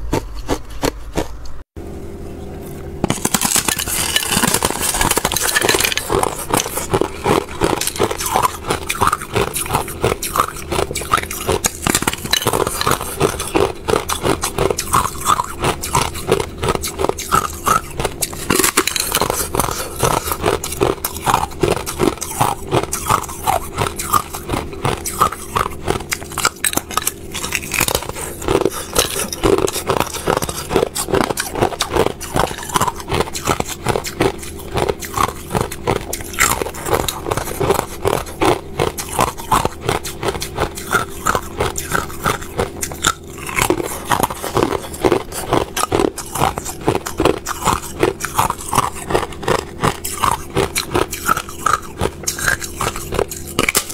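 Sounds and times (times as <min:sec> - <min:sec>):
ice crunching between teeth: 0:00.0 - 0:01.6, 0:03.0 - 0:53.9
steady low hum: 0:00.0 - 0:53.9.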